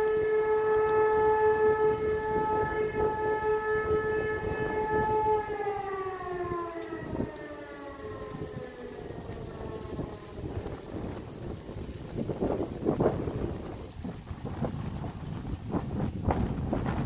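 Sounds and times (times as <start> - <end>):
civil defence sirens: 0.0 - 17.0.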